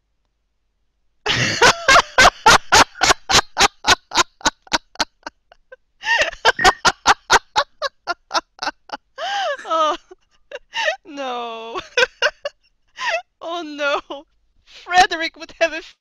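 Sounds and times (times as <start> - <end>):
woman laughing loudly: 1.3 - 13.3.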